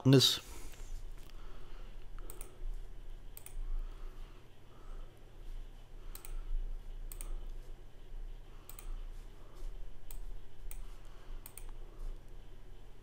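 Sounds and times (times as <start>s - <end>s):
low steady hum: 0.0s - 13.0s
computer mouse buttons clicking: 2.2s - 2.6s, 3.3s - 3.6s, 6.1s - 7.7s, 8.6s - 9.0s, 10.0s - 11.8s.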